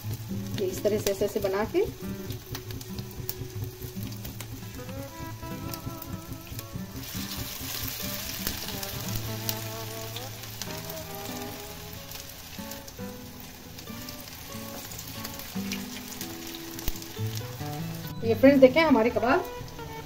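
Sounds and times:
small oil pops: 0.0s - 11.5s, 12.1s - 18.1s
patties sizzling in hot oil: 0.0s - 20.0s
soft background music: 0.0s - 20.0s.

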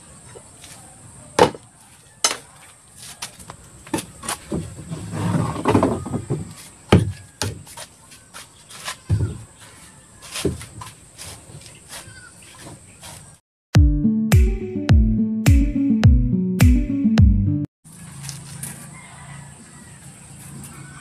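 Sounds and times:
wooden knocks and clatter: 3.9s - 7.7s
scraping on wood: 4.0s - 13.4s.

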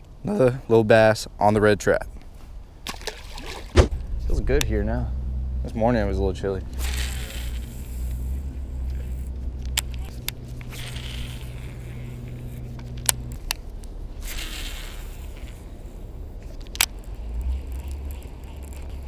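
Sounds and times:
low engine-like hum: 3.8s - 14.2s.

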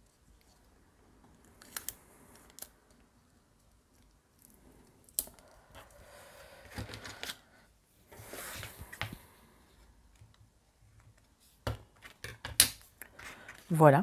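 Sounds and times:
paper sliding and rustling: 8.1s - 9.3s.

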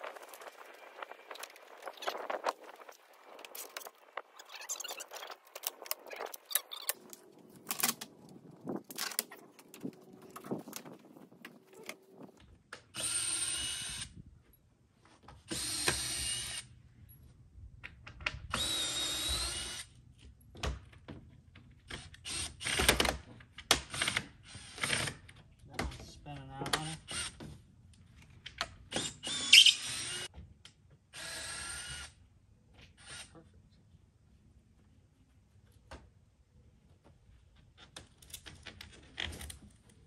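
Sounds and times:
power drill whining: 13.0s - 14.1s, 15.5s - 16.7s, 18.5s - 19.9s, 28.9s - 30.3s, 31.1s - 32.2s.

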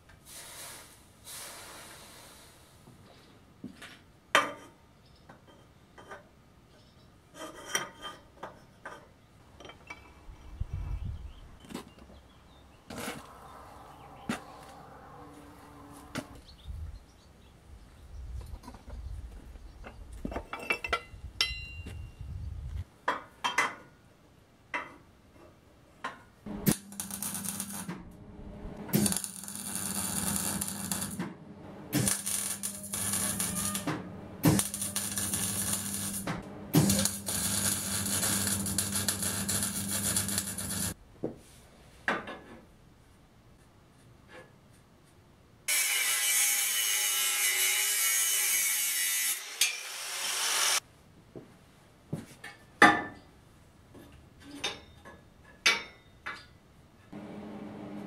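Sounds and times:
arc welding crackling and hissing: 26.5s - 28.0s, 28.9s - 31.3s, 31.9s - 41.0s
steady low hum: 26.5s - 39.2s.

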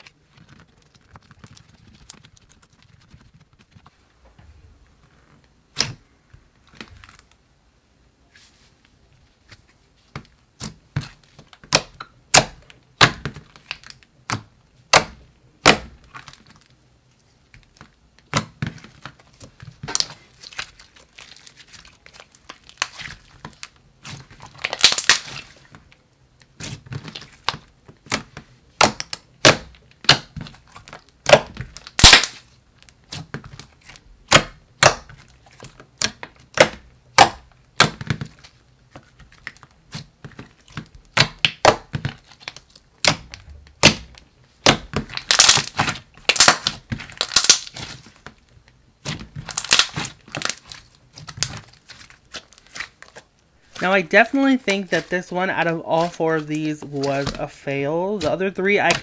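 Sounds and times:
slime crackling: 0.0s - 4.0s, 17.6s - 59.0s
slime clicking and popping: 24.5s - 25.4s, 28.8s - 32.5s, 40.8s - 48.0s, 49.0s - 53.2s.

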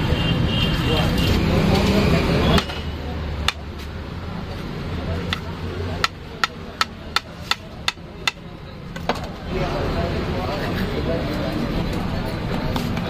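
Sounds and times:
knife chopping on hard counter: 5.3s - 8.4s.

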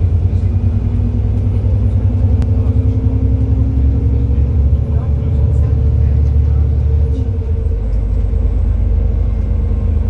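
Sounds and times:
bus engine and road rumble: 0.0s - 10.0s.

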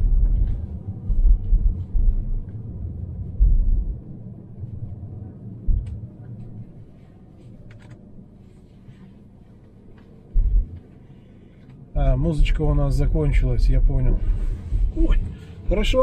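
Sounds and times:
tyres rumbling on bumpy road: 0.0s - 6.7s, 10.0s - 11.0s, 12.0s - 16.0s.

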